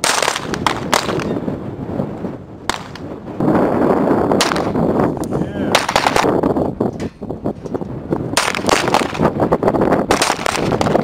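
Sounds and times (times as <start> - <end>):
pistol shots: 0.0 - 1.4, 2.7 - 3.1, 4.4 - 4.8, 5.7 - 6.3, 8.4 - 9.3, 10.1 - 11.0.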